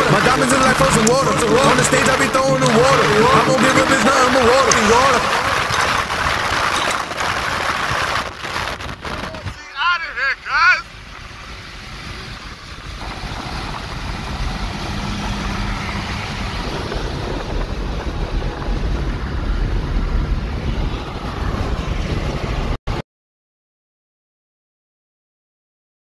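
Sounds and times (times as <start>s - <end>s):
road and wind noise in car: 0.0s - 22.8s.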